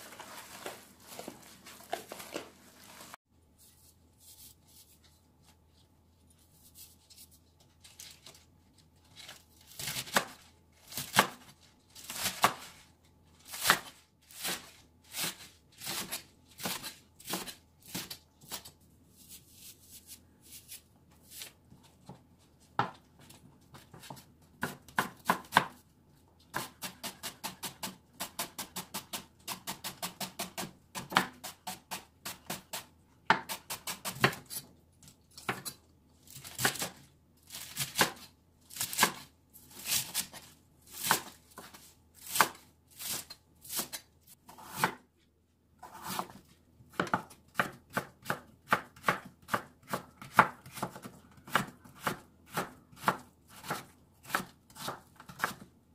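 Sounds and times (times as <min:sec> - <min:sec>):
knife chopping on wooden board: 0:26.5 - 0:34.5, 0:45.8 - 0:55.6.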